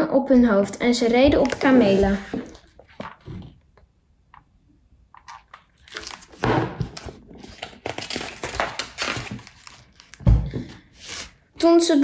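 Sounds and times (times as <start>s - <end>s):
book pages rustling: 1.0s - 3.6s, 5.1s - 11.5s
book thumping on wooden table: 6.4s - 7.1s.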